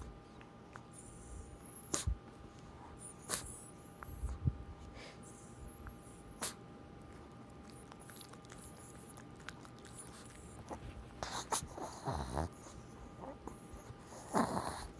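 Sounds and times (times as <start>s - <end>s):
dog chewing and licking toy: 7.0s - 14.9s.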